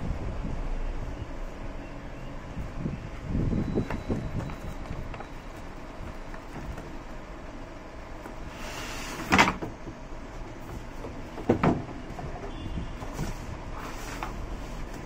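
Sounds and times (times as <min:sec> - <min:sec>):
cardboard and foam scraping rustles: 0:13.0 - 0:15.0.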